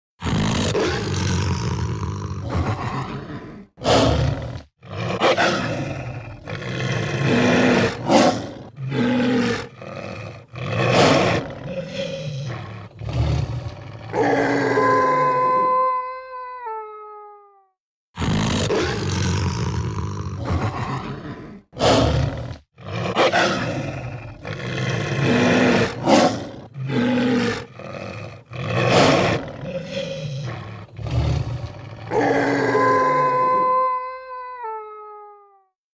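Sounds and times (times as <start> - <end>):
recorded beast growls and sniffs: 0.2 - 14.6, 18.2 - 32.7
recorded howl: 14.0 - 17.7, 31.2 - 35.8.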